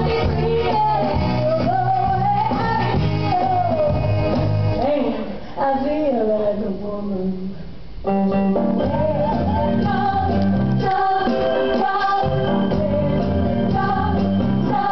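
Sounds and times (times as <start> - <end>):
live rock band playing: 0.0 - 4.8, 8.0 - 14.9.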